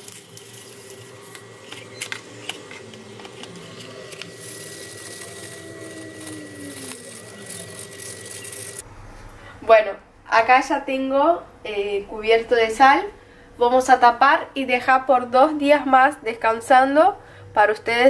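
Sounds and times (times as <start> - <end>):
salt pouring into bowl: 0.0 - 1.8, 3.7 - 8.8.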